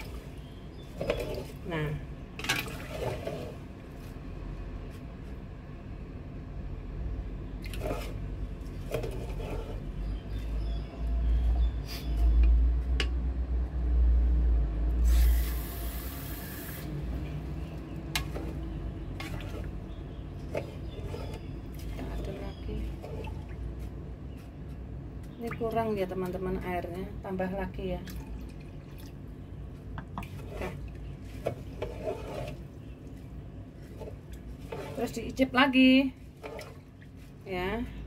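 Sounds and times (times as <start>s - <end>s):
liquid sloshing: 0.0s - 4.2s, 7.5s - 10.8s, 17.0s - 24.4s, 28.0s - 37.4s
paddle scraping rice grains: 7.7s - 10.1s, 30.3s - 32.8s, 33.8s - 35.3s.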